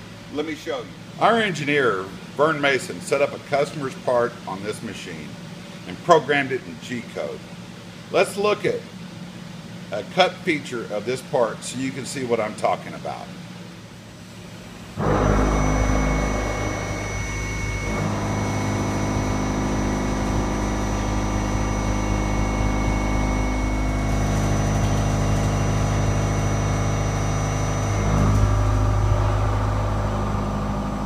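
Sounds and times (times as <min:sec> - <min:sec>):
milling machine cutting metal: 0:15.0 - 0:31.0.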